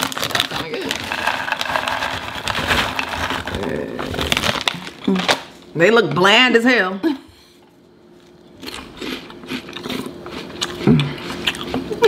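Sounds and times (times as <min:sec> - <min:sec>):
crunchy snack being chewed: 0:08.2 - 0:12.0.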